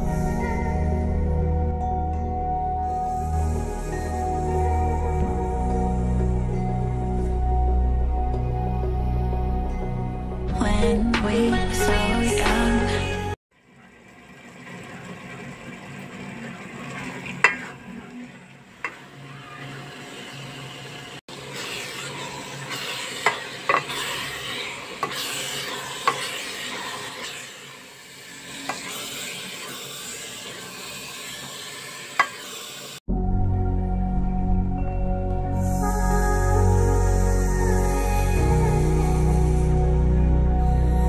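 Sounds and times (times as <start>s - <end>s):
carrots sizzling in a pot: 18.8s - 33.0s.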